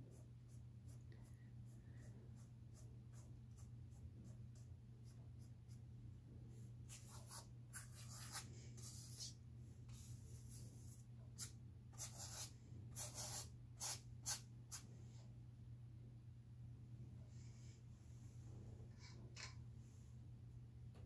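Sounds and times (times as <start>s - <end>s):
paintbrush scratching on canvas: 0.0s - 5.8s, 6.5s - 14.9s
faint low hum: 0.0s - 21.0s.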